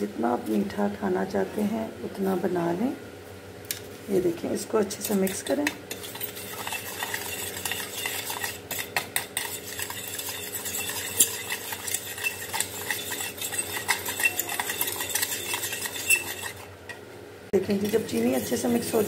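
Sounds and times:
metal spoon clinking on plate: 5.3 - 17.0.

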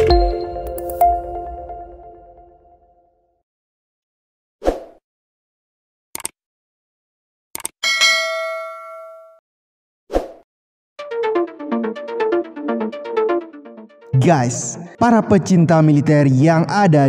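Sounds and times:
bell-like notification ding: 7.8 - 9.4.

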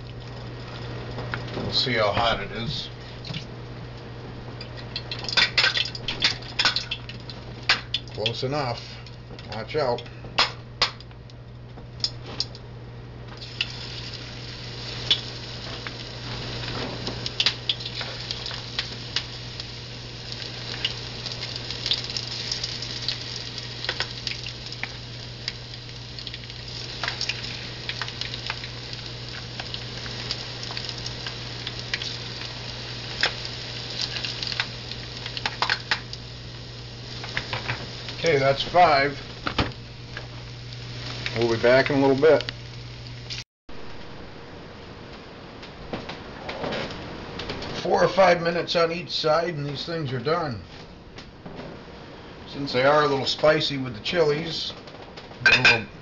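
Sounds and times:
oil sizzling in a frying pan: 0.0 - 3.5, 4.6 - 10.0, 13.4 - 43.4.

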